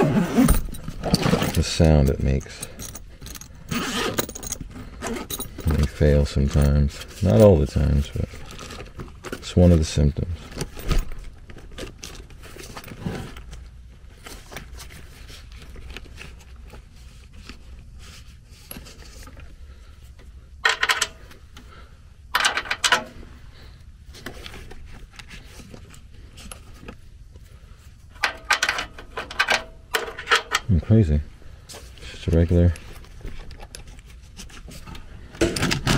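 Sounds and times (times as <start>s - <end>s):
metal parts clinking and scraping: 0.0s - 13.6s, 20.6s - 21.6s, 22.3s - 23.3s, 28.0s - 30.9s, 31.8s - 35.9s
low steady hum: 0.0s - 35.9s.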